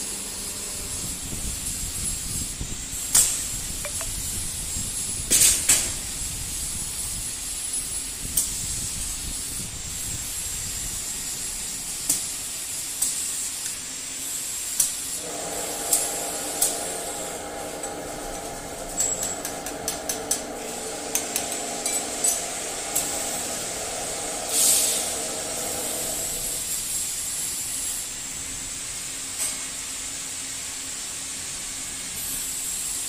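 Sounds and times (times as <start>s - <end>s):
welding machine hiss and whine: 0.0s - 33.0s
compressed air hisses and clicks: 0.9s - 28.1s
motor humming: 15.2s - 26.9s.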